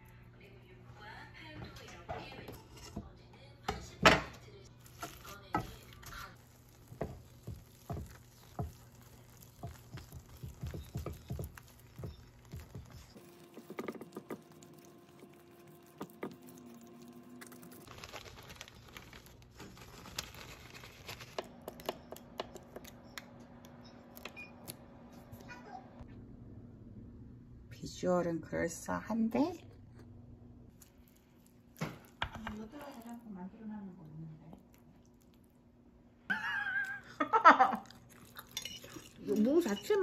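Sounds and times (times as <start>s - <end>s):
spatula scraping a skillet: 4.9s - 14.4s
potato masher knocking in pot: 6.8s - 14.6s.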